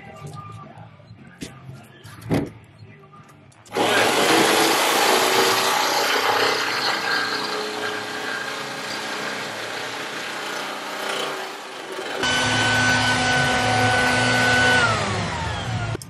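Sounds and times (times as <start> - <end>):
power saw cutting sheet steel: 3.7 - 16.0.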